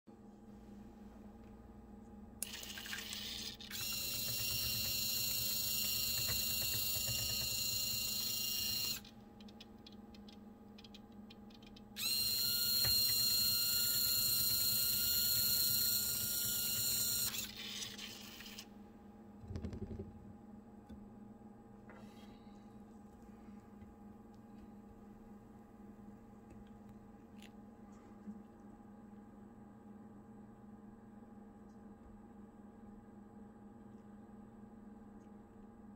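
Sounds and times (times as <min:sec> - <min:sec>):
electric motor whining: 0:12.0 - 0:18.6
soft low thump: 0:19.4 - 0:20.4.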